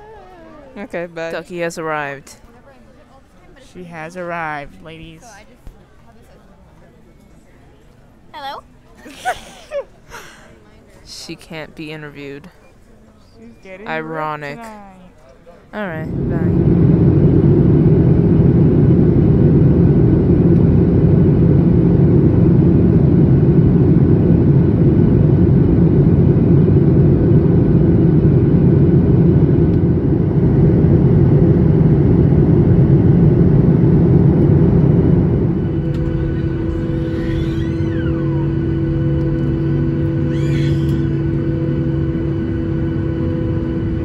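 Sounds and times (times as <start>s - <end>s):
jet engines and rushing air: 16.0s - 44.0s.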